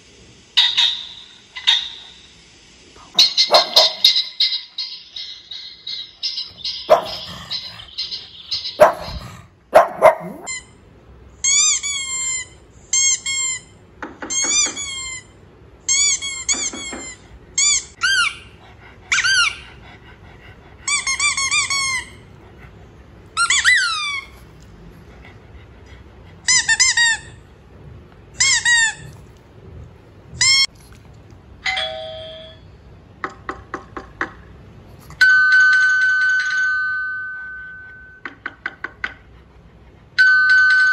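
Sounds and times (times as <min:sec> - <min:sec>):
squeaky toy squeaking: 0:03.2 - 0:04.9, 0:06.2 - 0:10.8, 0:11.4 - 0:13.7, 0:14.3 - 0:19.7, 0:20.8 - 0:22.4, 0:23.4 - 0:24.4, 0:26.4 - 0:27.4, 0:28.4 - 0:29.2, 0:30.4 - 0:30.7
electronic doorbell chime: 0:31.6 - 0:32.6, 0:35.3 - 0:38.2.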